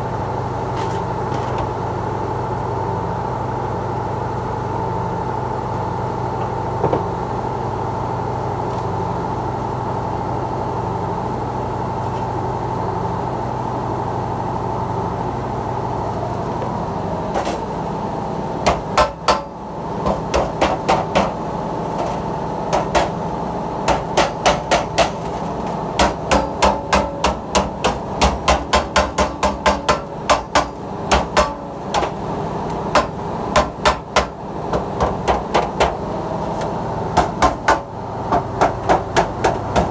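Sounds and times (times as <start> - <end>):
steady hum: 0.0 - 39.9
wooden mallet beating sheet metal: 18.7 - 19.5, 23.9 - 25.2, 26.0 - 32.1, 32.9 - 36.0, 37.2 - 39.9.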